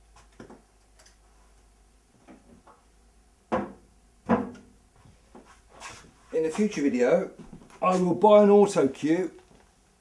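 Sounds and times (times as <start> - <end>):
knocks on wooden cabinet: 3.5 - 4.7.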